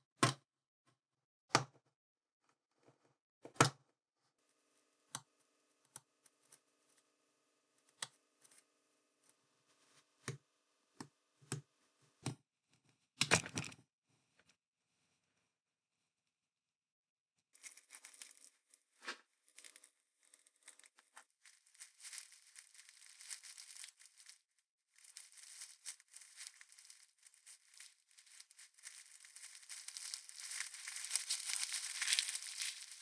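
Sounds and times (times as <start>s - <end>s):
waxed paper and foil crackling: 17.6s - 18.6s, 19.5s - 33.0s.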